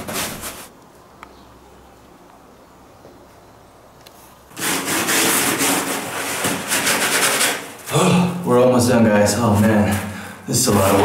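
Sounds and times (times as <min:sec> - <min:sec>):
paintbrush scrubbing on concrete: 0:04.5 - 0:07.9.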